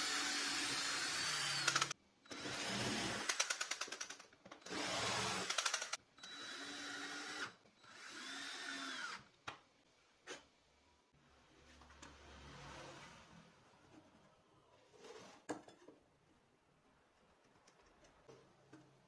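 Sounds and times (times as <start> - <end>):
cordless drill running: 0.0 - 3.4, 4.7 - 9.2
drill clutch rapid clicking: 0.6 - 2.0, 3.2 - 6.0.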